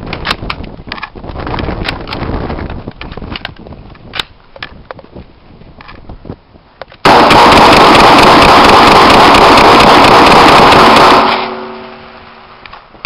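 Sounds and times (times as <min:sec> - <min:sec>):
distorted rifle fire: 0:07.0 - 0:11.9.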